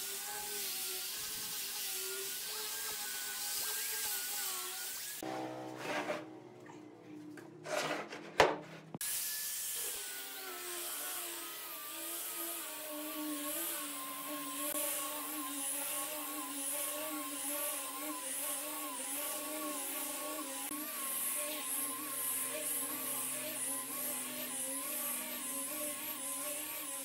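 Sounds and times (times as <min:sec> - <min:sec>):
sanding disc hissing on wood: 0:00.0 - 0:05.2, 0:09.1 - 0:27.0
angle grinder motor whine: 0:09.0 - 0:27.0.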